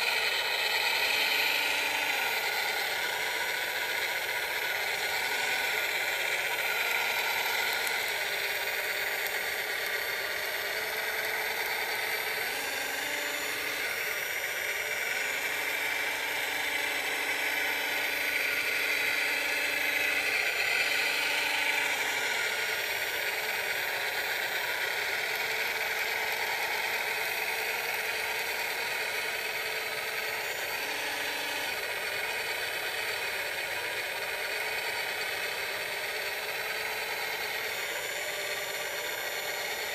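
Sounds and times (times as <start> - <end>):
electric motors whirring: 0.0 - 39.9.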